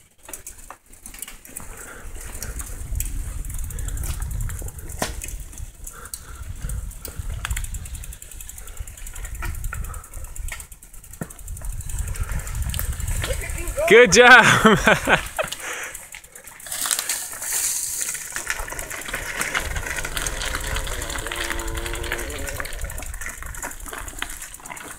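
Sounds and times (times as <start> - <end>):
bike clicks and rattles: 0.0 - 24.9
bike tyres rolling on dirt: 0.0 - 24.9
wind rumble on microphone: 2.1 - 13.9, 18.5 - 24.6.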